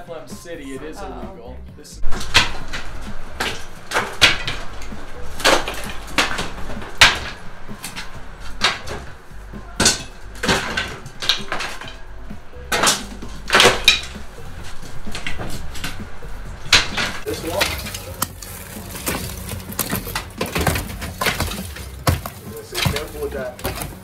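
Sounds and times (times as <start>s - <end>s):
sharp knocks and cracks of demolition: 2.0s - 12.1s, 12.7s - 14.2s, 16.6s - 24.0s
debris clattering down: 2.0s - 24.0s.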